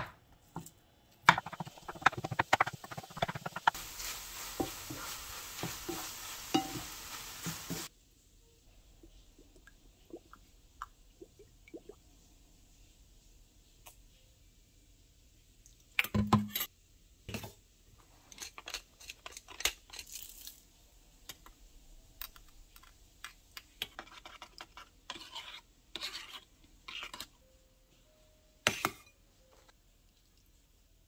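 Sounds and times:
utensil scraping stirs: 1.4s - 7.9s, 23.6s - 27.4s
metal utensils clinking on metal cup: 5.9s - 6.9s.

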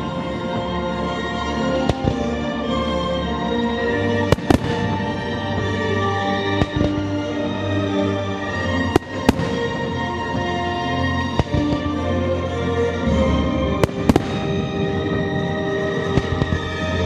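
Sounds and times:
steady music: 0.0s - 17.0s
fireworks bursting: 4.2s - 12.1s, 13.0s - 17.0s.

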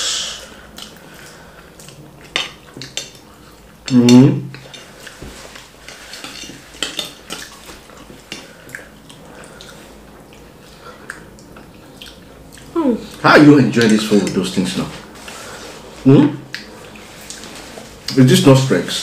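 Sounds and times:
cutlery clinking against dishes: 5.9s - 7.7s.

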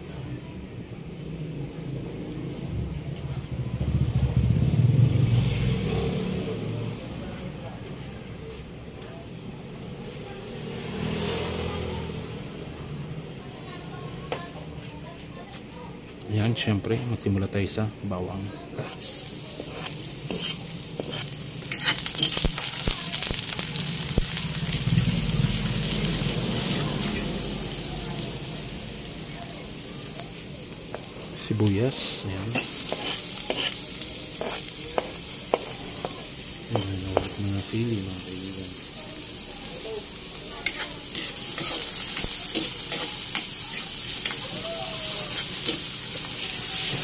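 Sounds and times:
metal spatula scraping a wok: 18.4s - 24.1s, 32.0s - 37.4s, 40.6s - 47.0s
garlic sizzling in hot oil: 18.8s - 47.0s.

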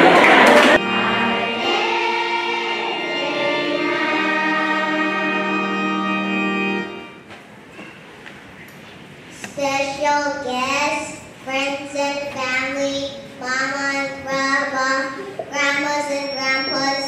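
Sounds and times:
organ-like sustained chords: 0.0s - 7.2s, 16.0s - 17.0s
choir singing held notes: 0.0s - 7.3s, 16.1s - 17.0s.

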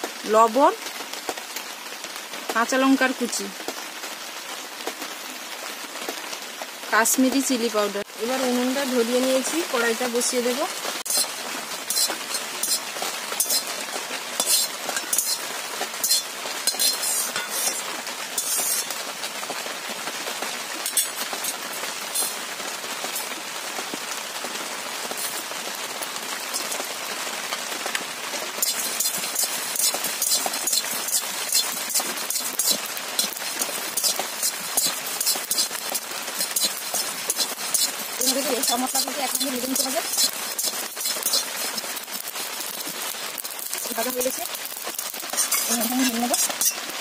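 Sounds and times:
steady hiss: 10.6s - 47.0s
seeds rattling in pan: 11.1s - 13.7s, 14.4s - 15.4s, 16.0s - 18.9s, 28.6s - 46.8s
metal spatula scraping pan: 11.1s - 13.8s, 14.4s - 15.4s, 16.0s - 18.9s, 20.9s - 22.4s, 28.6s - 42.8s, 44.7s - 46.9s.

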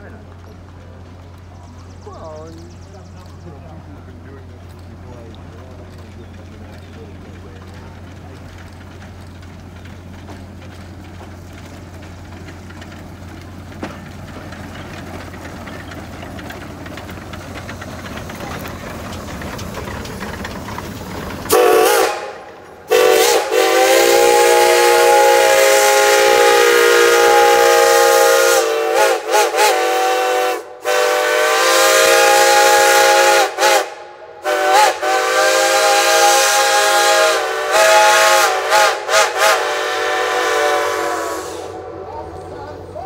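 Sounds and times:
steam locomotive whistle blowing: 21.5s - 42.2s.

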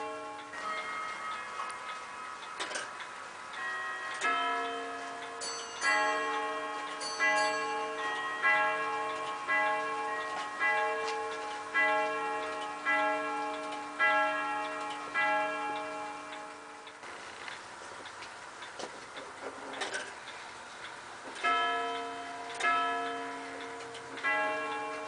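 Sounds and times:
clock striking rod gongs: 0.0s - 17.1s, 19.2s - 25.0s
clock ticking: 0.0s - 25.0s.

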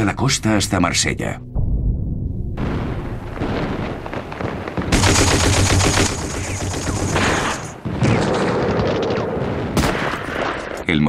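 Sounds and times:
machine-gun fire: 3.4s - 10.6s.

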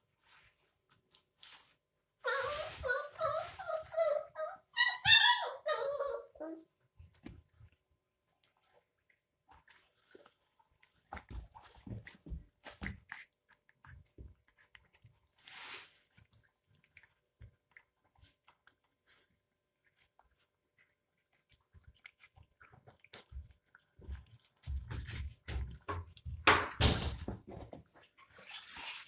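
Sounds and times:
puppies suckling wet clicks: 6.9s - 26.5s.

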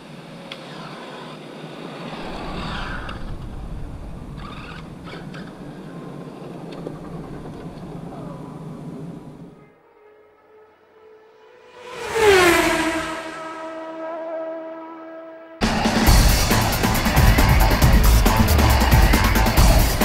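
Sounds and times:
electric toy car motor and tyres: 0.2s - 3.4s.

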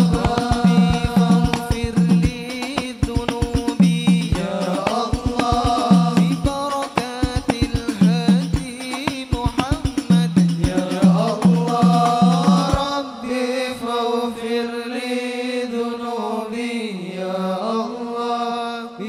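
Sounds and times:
voices chanting in unison: 0.0s - 2.1s, 4.4s - 6.6s, 10.7s - 19.0s
hand drum beat: 0.0s - 12.9s.

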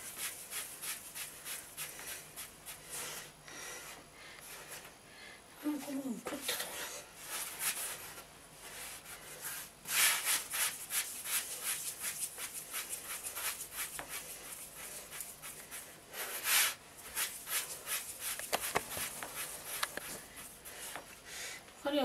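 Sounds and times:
hands rolling dough on wood: 7.2s - 21.2s.

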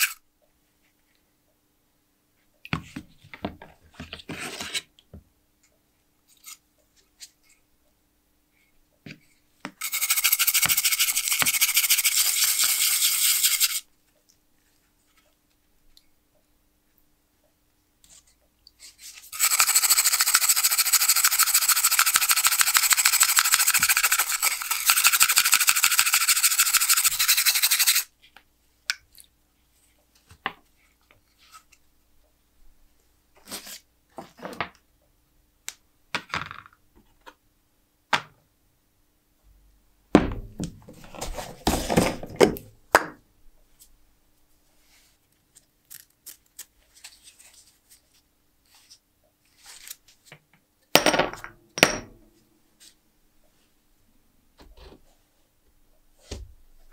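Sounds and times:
fast scrubbing of metal parts: 9.8s - 13.8s, 19.2s - 28.1s.

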